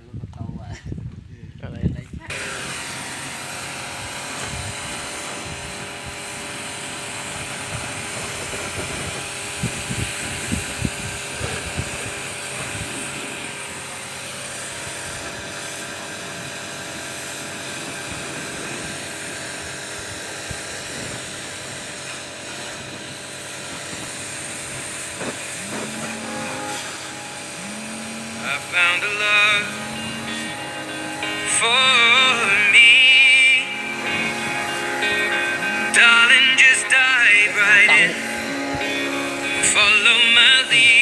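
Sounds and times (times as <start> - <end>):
pressure sprayer pump running: 2.3 - 41.0
hiss of spray: 4.4 - 31.4.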